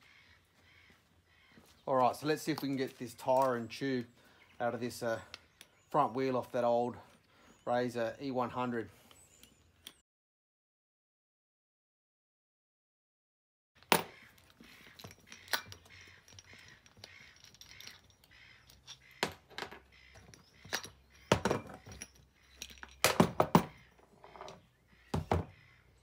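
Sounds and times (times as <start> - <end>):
metal parts knocking and clinking: 13.8 - 24.6.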